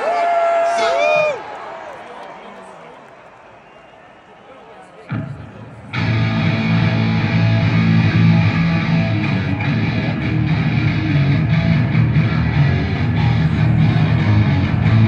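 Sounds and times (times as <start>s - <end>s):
live heavy metal music: 5.9s - 15.0s.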